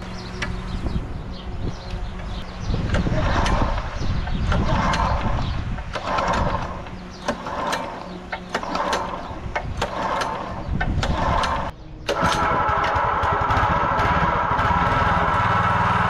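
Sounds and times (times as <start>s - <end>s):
small boat engine running: 0.0s - 16.0s.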